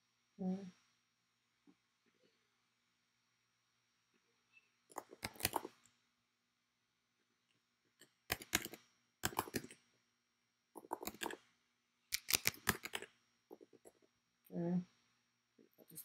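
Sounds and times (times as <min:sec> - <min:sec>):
typing on computer keyboard: 0:04.9 - 0:05.8, 0:08.3 - 0:09.8, 0:10.8 - 0:11.4, 0:12.2 - 0:13.7.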